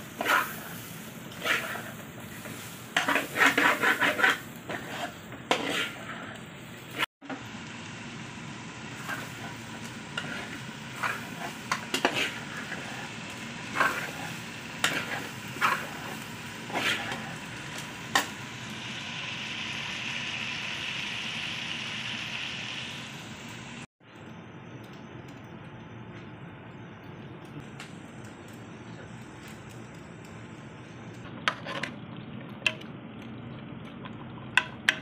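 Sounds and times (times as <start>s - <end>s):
curry sizzling in a pot: 0.0s - 23.9s
spoon scraping a pot: 0.2s - 7.1s, 10.2s - 13.1s.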